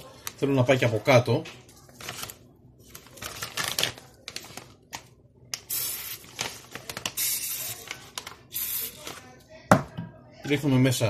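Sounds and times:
plastic bag crinkling: 1.7s - 5.0s, 6.2s - 8.4s.

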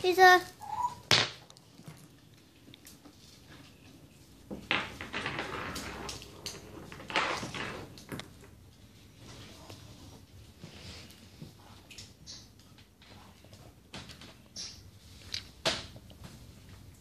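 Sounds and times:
marble rolling on wooden floor: 3.1s - 10.2s.

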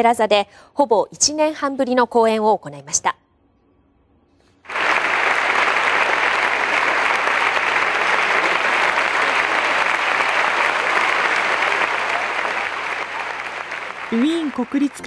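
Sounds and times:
large audience applauding: 4.7s - 15.0s.

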